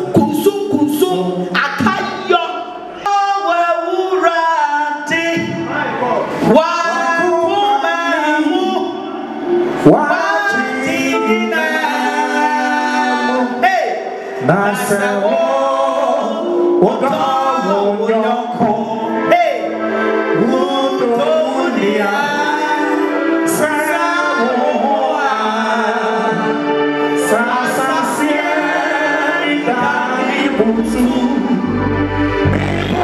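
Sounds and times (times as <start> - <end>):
amplified gospel singing: 0.0 - 33.0
low bass sound: 30.9 - 33.0.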